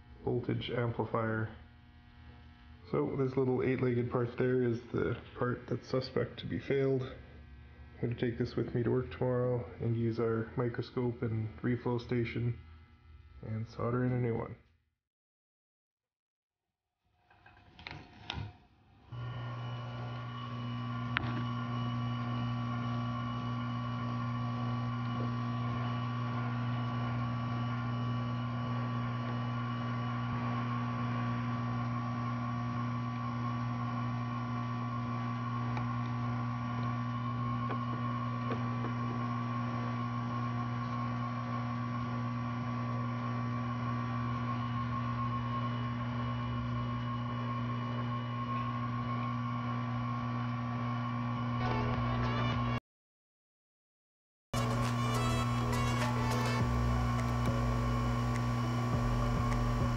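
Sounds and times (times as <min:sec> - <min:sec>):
electrical hum: 0:00.0 - 0:14.6, 0:19.1 - 0:52.8, 0:54.6 - 0:59.9
thin high whine: 0:54.6 - 0:59.9.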